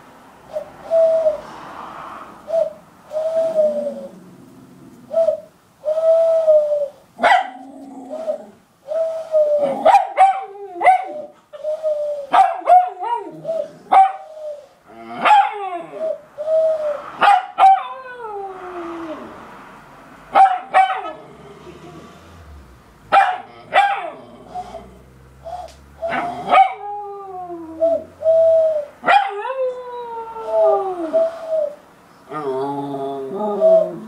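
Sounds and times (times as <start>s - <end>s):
dog barking and yipping: 7.2s - 7.7s, 9.6s - 11.3s, 12.3s - 14.3s, 15.2s - 16.0s, 17.2s - 18.0s, 20.3s - 21.2s, 23.1s - 24.2s, 26.1s - 26.9s, 29.0s - 29.5s
dog howling: 26.1s - 28.2s.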